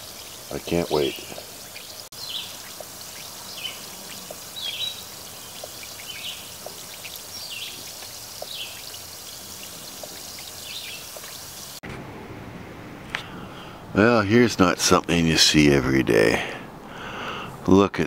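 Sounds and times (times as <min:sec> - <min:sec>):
bubbles bursting ticks: 0:00.0 - 0:11.7
acid fizzing hiss: 0:00.0 - 0:11.8.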